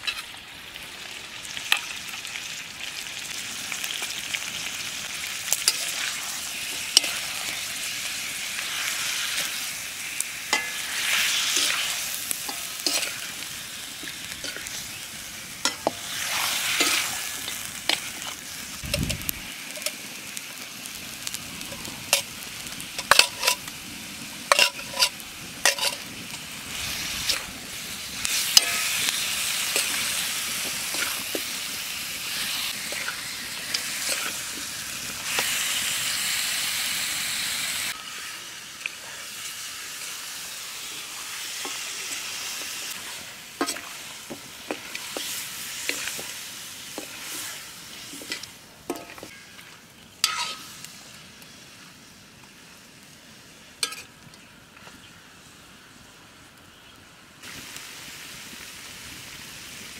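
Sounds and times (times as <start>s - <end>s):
food sizzling in a pot: 0.0s - 59.9s.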